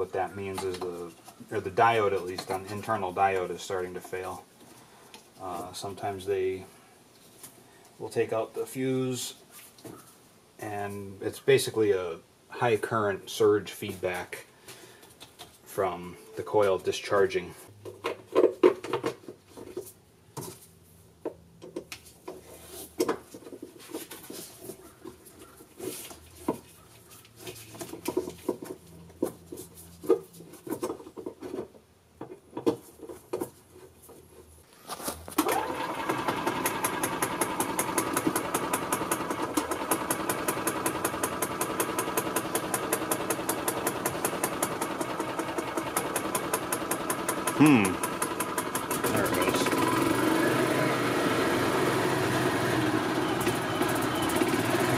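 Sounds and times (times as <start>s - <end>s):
golf cart engine running: 35.4s - 54.9s.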